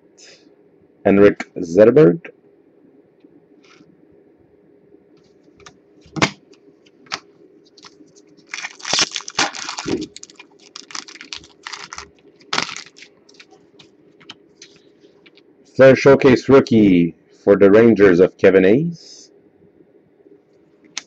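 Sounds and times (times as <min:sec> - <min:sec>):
wrapper crinkling: 0:07.1 - 0:15.4.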